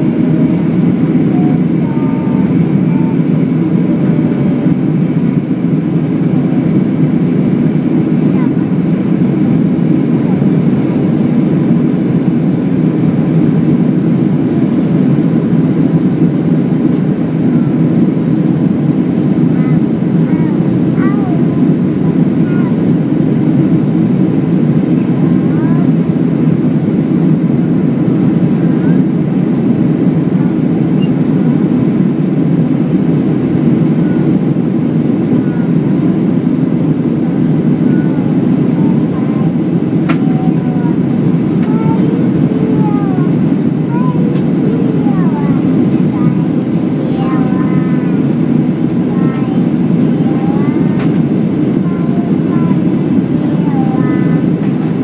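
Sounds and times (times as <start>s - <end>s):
jet engine cabin rumble: 0.0s - 55.0s.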